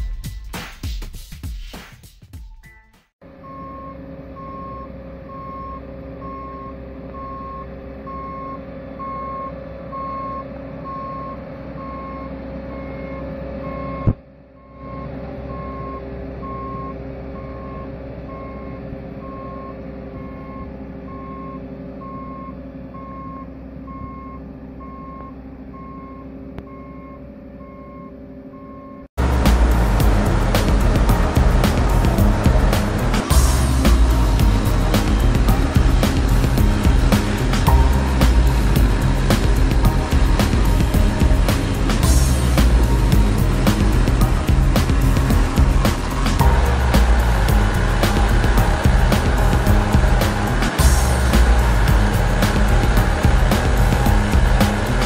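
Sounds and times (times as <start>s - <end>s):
reversing alarm beeps: 2.6s - 29.1s
diesel engine running: 3.2s - 55.0s.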